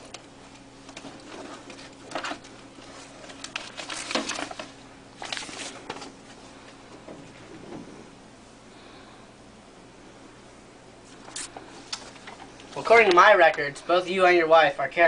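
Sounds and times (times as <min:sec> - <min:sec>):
paper folders rustling: 0:00.0 - 0:08.0, 0:11.1 - 0:15.0.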